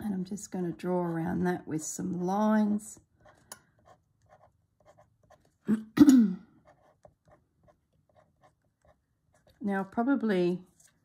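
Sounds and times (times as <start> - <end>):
pen scratching on paper: 3.2 - 5.6, 6.6 - 9.7.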